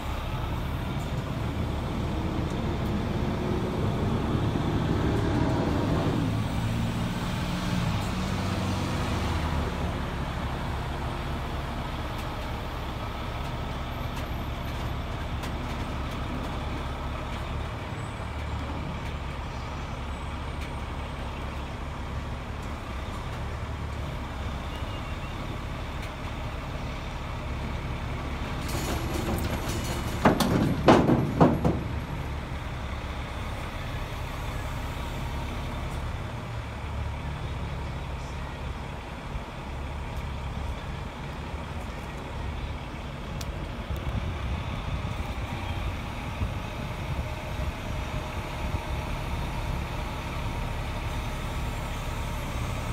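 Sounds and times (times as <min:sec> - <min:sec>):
truck engine idling: 0:00.0 - 0:52.9.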